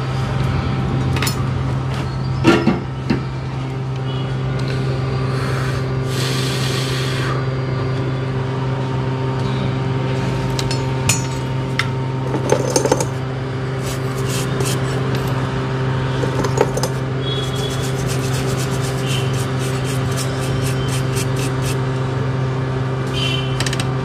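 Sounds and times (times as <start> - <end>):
equipment humming: 0.0 - 24.0
small tools clicking and tapping: 16.3 - 17.0, 23.6 - 23.9.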